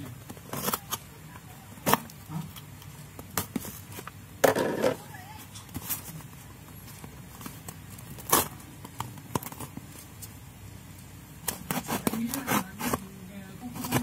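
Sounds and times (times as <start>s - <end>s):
cardboard and tape rustling scrape: 0.2s - 1.1s, 1.8s - 8.7s, 11.4s - 14.0s.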